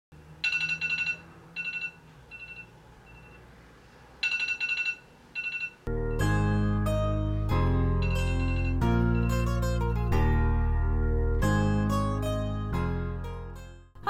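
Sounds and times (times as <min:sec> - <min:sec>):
plucked-string music: 0:05.9 - 0:14.0.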